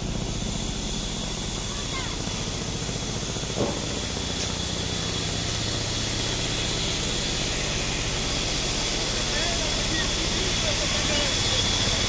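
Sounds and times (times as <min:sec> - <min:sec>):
band saw machinery running: 0:00.0 - 0:12.0.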